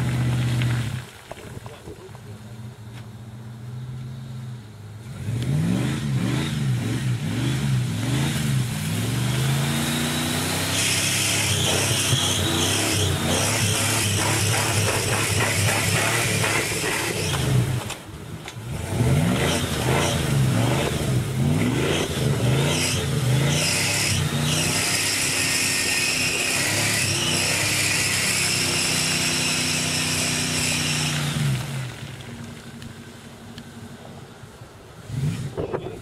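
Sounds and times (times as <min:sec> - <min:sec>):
tyres spinning in mud: 0:00.0 - 0:02.6
pickup engine revving: 0:03.4 - 0:32.1.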